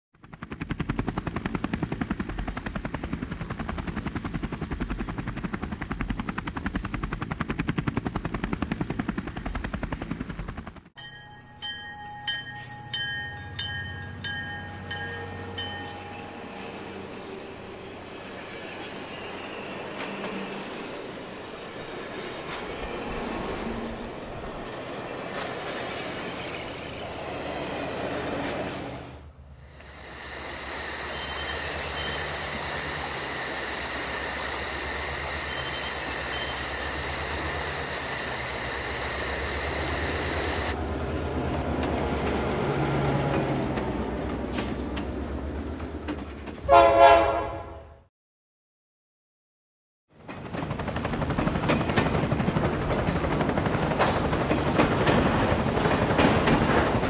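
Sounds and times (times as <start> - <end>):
locomotive bell ringing: 11.0 - 16.6.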